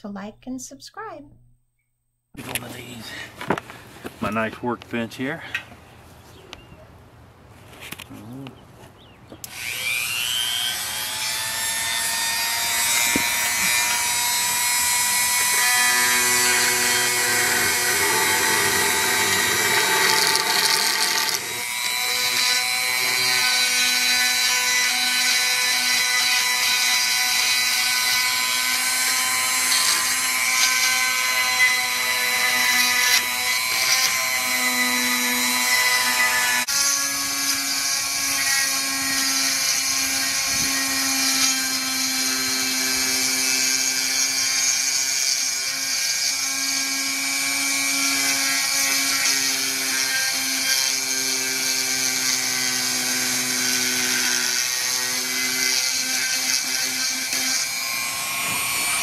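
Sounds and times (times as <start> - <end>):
rotary tool high whine: 9.4 - 59.0.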